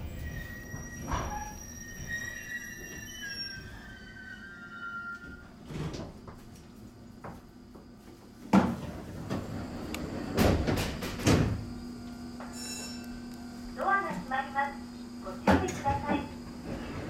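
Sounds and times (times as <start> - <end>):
train doors closing thud: 10.2 - 11.7.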